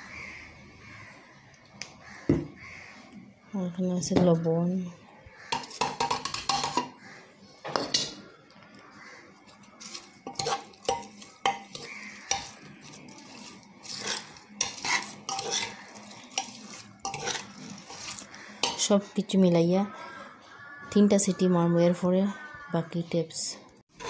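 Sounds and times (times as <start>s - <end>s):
metal spoon scraping pot: 5.5s - 7.0s, 7.7s - 8.3s, 9.4s - 19.7s.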